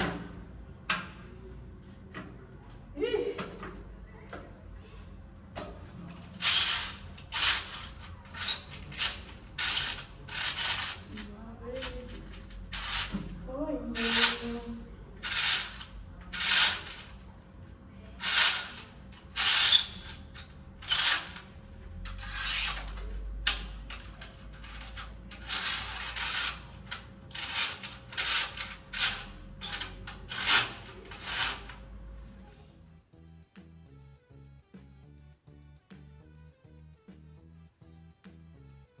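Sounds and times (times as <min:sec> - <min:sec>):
curtain runners scraping along track: 0:06.2 - 0:17.2, 0:18.2 - 0:31.9.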